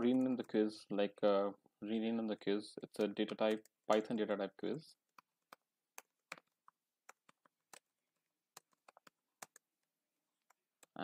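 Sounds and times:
computer keyboard typing: 2.8 - 4.2, 5.0 - 11.0.

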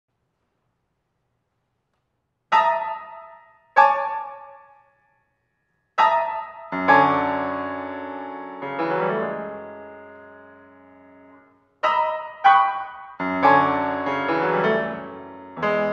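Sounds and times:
piano playing slow chords: 2.5 - 4.9, 6.0 - 15.9.

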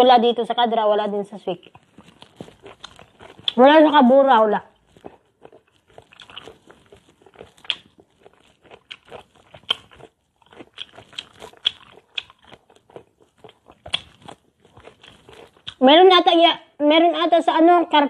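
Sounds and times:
person chewing crisp fruit: 1.5 - 15.8.

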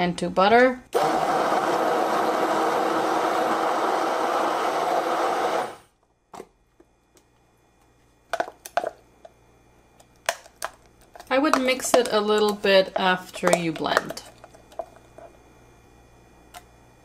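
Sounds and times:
hand blender whipping cream: 1.0 - 5.8.

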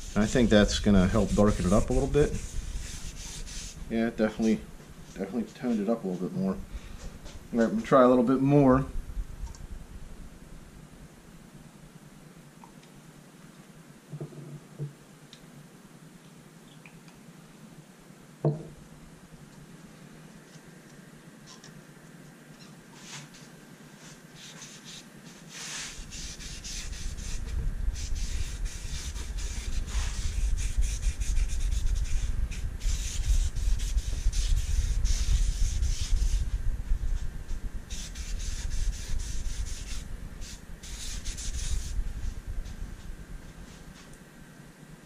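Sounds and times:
cloth pad rubbing wood: 0.0 - 3.9, 24.0 - 36.6
low rumble: 8.7 - 11.0, 27.5 - 37.9.

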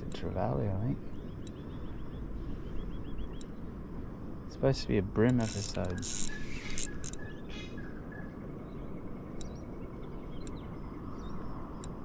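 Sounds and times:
light clicks: 0.0 - 0.4, 3.3 - 3.6, 5.2 - 7.3, 9.3 - 9.6, 10.4 - 10.7, 11.7 - 12.0
faint bird calls: 0.0 - 3.9, 5.3 - 12.0
outdoor background noise: 0.0 - 12.0.

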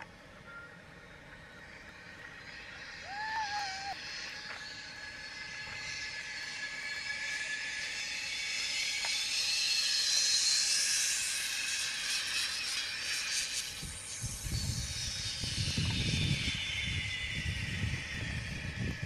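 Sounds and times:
zip line trolley whining: 0.0 - 19.0
wind rumble on microphone: 13.6 - 19.0.

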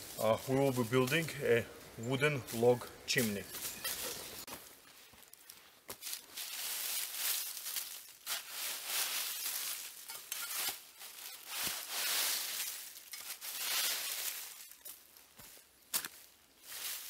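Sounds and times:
dry leaves rustling and crunching: 0.0 - 1.5, 2.4 - 17.0
shovel scraping through leaves: 2.5 - 4.5, 6.0 - 15.1, 16.0 - 17.0.

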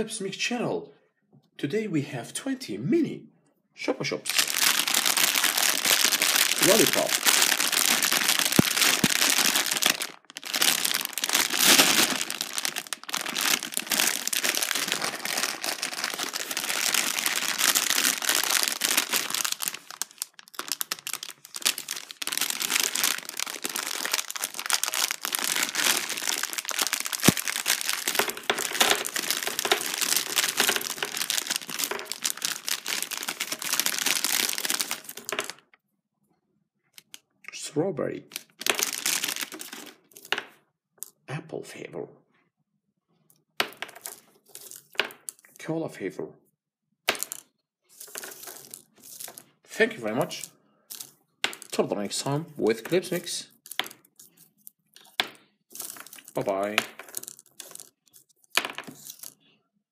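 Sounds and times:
plastic bag crinkling: 4.2 - 35.7, 38.3 - 40.6, 43.6 - 45.5, 47.1 - 59.4.

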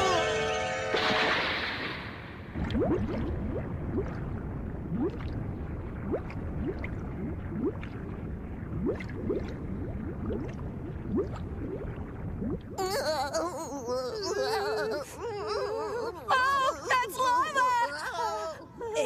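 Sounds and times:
lava bubbling: 1.7 - 13.0
bubble plops: 2.5 - 12.8.

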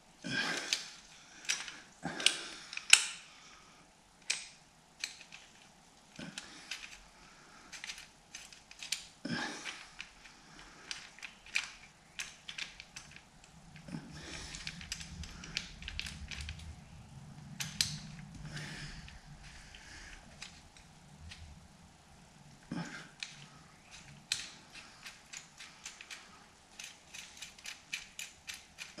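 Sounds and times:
low steady hum: 0.0 - 29.0
metallic clicks of chain handling: 23.2 - 29.0.

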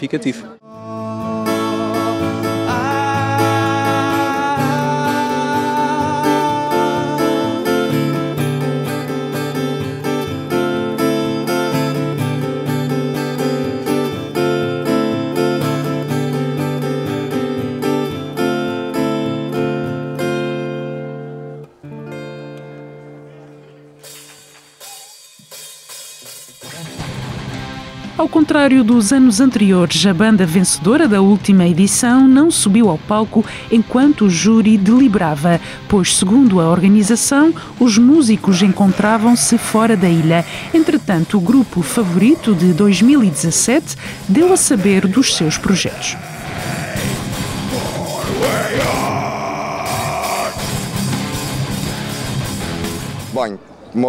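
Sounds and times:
man singing: 0.6 - 8.3
strummed acoustic guitar: 0.7 - 24.6.

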